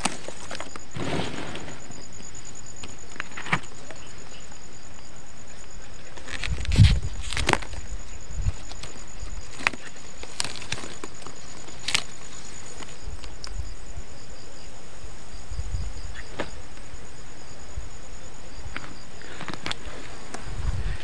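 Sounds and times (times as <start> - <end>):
constant hiss: 0.0 - 21.0
insects trilling: 0.0 - 21.0
onion leaves clicking: 9.5 - 12.2.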